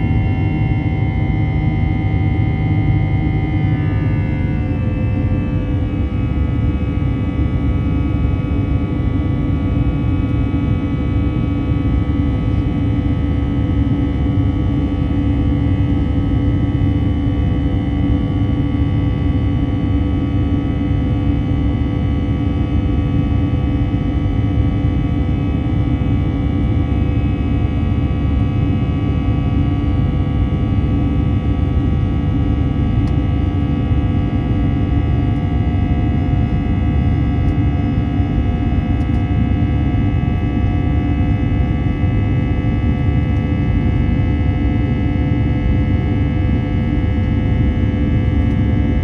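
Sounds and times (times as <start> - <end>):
airplane cabin rumble: 0.0 - 11.6, 32.6 - 49.0
jet engine fan whine: 0.0 - 49.0.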